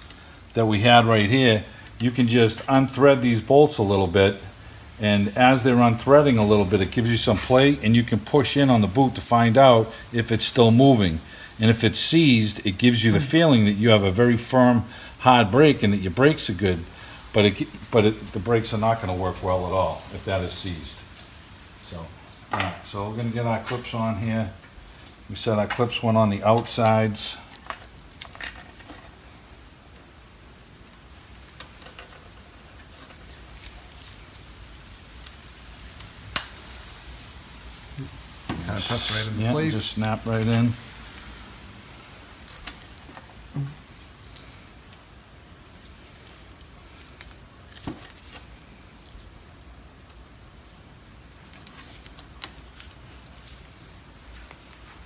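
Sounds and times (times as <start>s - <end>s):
metal parts clicking and tapping: 30.2s - 33.4s, 38.6s - 39.4s.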